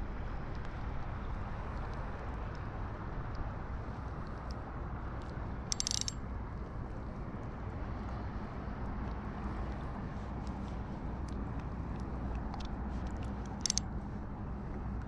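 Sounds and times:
faint ticks: 0:00.4 - 0:04.6, 0:05.2 - 0:06.2, 0:07.4 - 0:14.0.

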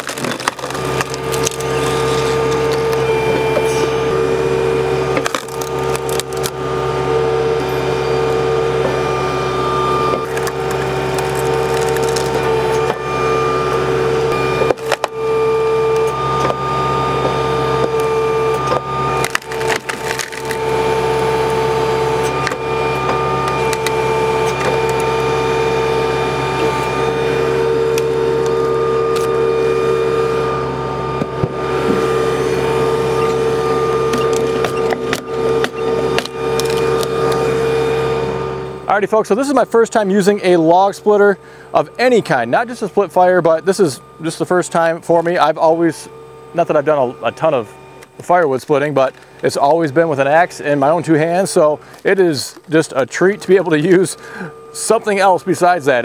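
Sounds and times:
logs cracking and splintering: 0:00.0 - 0:03.0, 0:05.2 - 0:06.6, 0:10.2 - 0:12.8, 0:17.9 - 0:20.9
tractor diesel engine running: 0:00.0 - 0:56.0.

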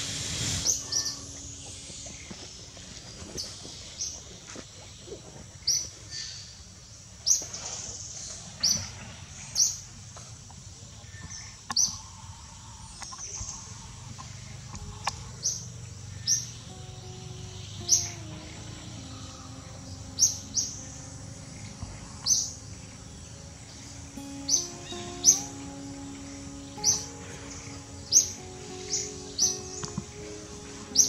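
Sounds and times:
steady high outdoor hiss: 0:00.0 - 0:31.0
bird giving high chirps: 0:16.6 - 0:31.0.

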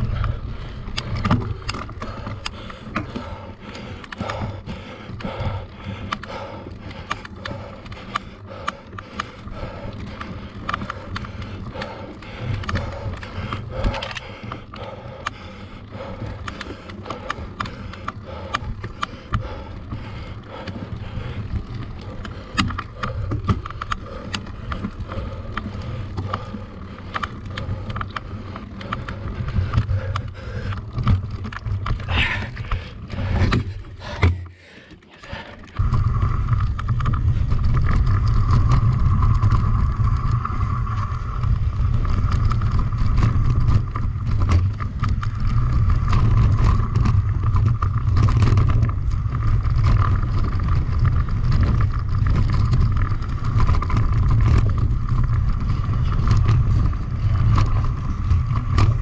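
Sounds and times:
bike tyre and drivetrain noise: 0:00.0 - 0:59.0
constant higher hum: 0:00.0 - 0:59.0
wind rumble on microphone: 0:35.8 - 0:59.0.

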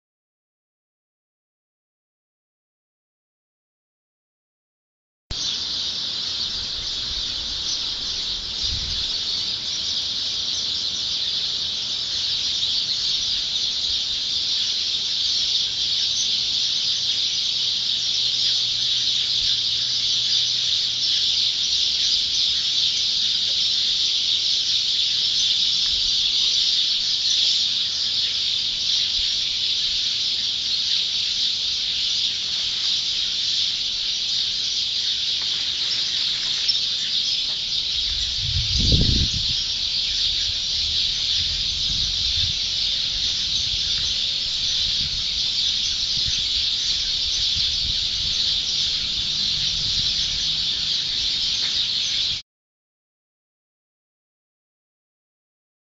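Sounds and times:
birds chirping chorus: 0:05.3 - 0:52.4.

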